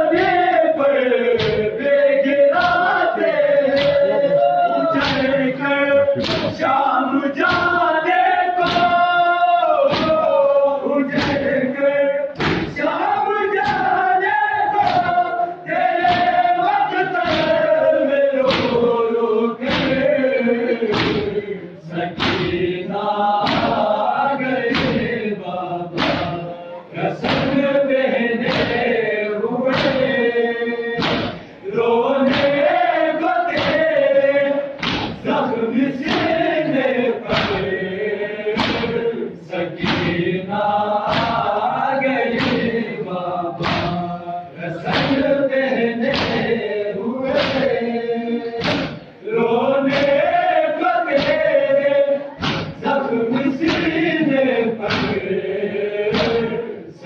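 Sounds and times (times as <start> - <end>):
men singing in unison: 0.0 - 57.0
chest beating thuds: 12.4 - 12.8, 31.0 - 31.5, 34.8 - 35.3, 48.6 - 49.1, 52.4 - 52.8.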